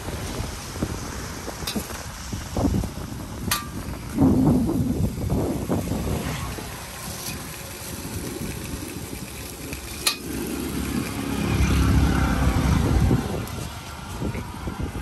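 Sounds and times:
vehicle rumble: 0.0 - 15.0
noodles sizzling in a wok: 5.6 - 11.6.

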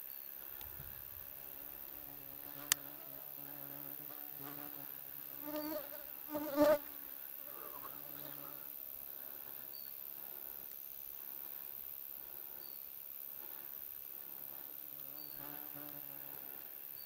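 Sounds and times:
flying insects buzzing: 0.0 - 17.0.

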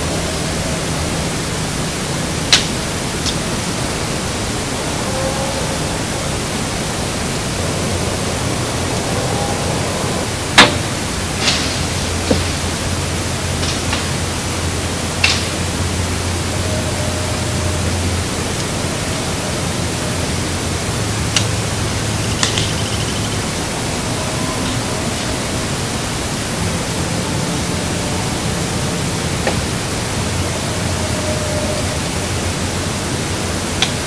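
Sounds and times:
steady loud hiss: 0.0 - 34.0.

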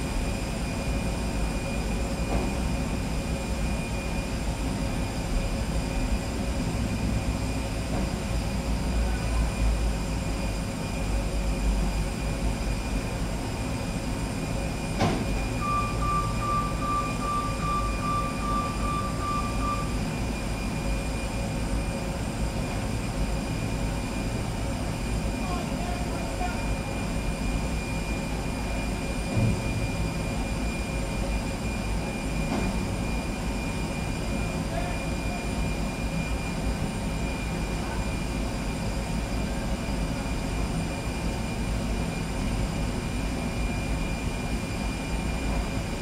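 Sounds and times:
steady high whine: 0.0 - 46.0
high pulsing beep: 15.4 - 21.6.

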